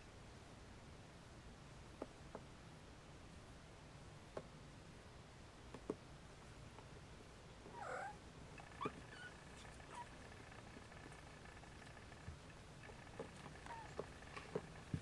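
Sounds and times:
cats purring: 0:07.6 - 0:15.0
faint kitten squeaks: 0:07.7 - 0:12.2, 0:12.9 - 0:15.0.

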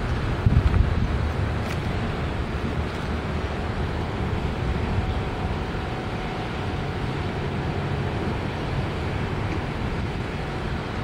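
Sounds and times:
distant engine hum: 0:00.0 - 0:11.0
wind rumbling on microphone: 0:00.0 - 0:11.0.

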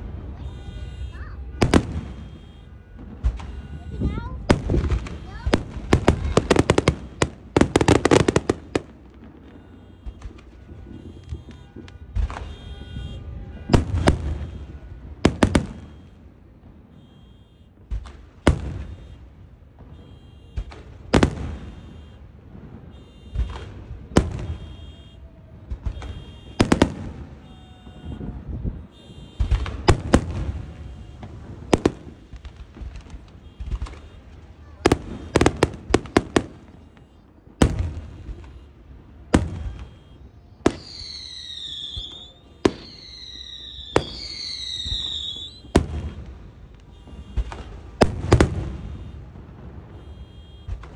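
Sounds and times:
fireworks bangs and crackles: 0:00.0 - 0:50.9
car alarm beeping: 0:00.4 - 0:32.4, 0:33.1 - 0:50.8
falling firework whistles: 0:39.4 - 0:46.3.

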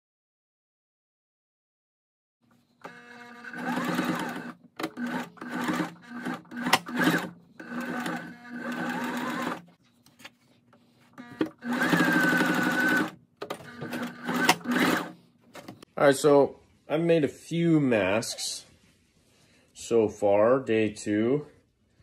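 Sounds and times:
sewing machine stitching: 0:02.8 - 0:09.7, 0:11.2 - 0:15.8.

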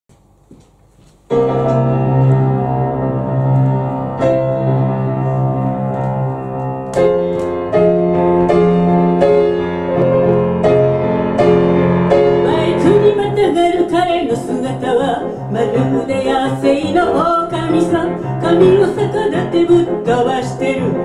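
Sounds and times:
grand piano playing chords: 0:00.2 - 0:21.0.

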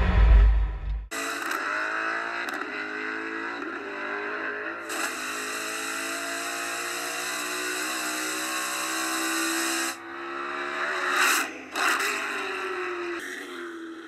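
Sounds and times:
short loud rushes of noise: 0:00.0 - 0:01.1.

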